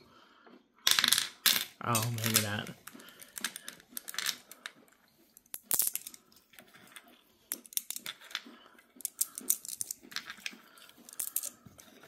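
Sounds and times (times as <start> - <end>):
glass stones clicking: 1.9 - 4.7, 5.4 - 8.4, 9.0 - 11.6.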